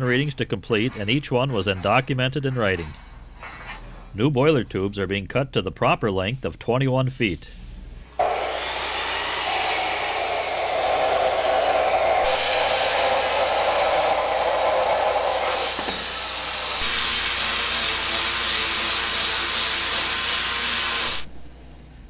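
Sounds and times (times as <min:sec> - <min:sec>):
cut-off saw grinding steel: 0:08.2 - 0:21.3.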